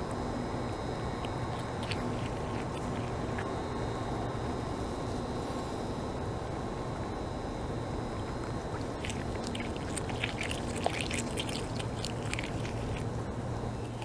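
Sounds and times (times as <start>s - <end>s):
low background rush: 0.0s - 14.0s
beaver chewing with crisp crunches: 1.0s - 3.5s, 8.1s - 14.0s.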